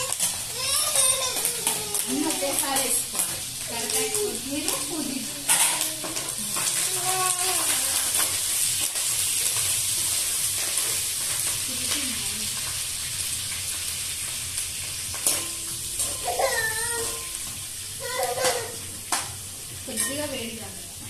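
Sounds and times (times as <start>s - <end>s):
greens sizzling in oil: 0.0s - 21.0s
metal spoon scraping pan: 4.7s - 6.9s.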